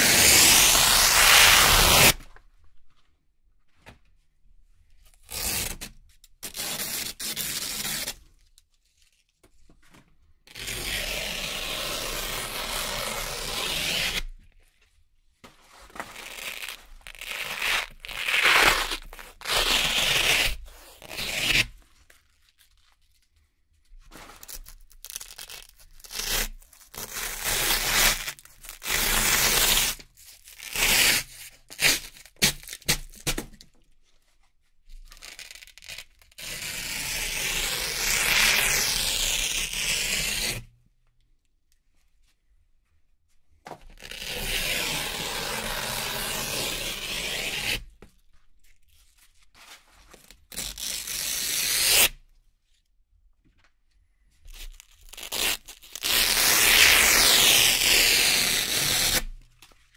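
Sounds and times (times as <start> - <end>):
velcro strips ripping: 0.0 - 2.3, 10.5 - 14.4, 16.0 - 21.7, 24.4 - 33.4, 35.1 - 40.6, 50.2 - 52.2, 54.5 - 59.8.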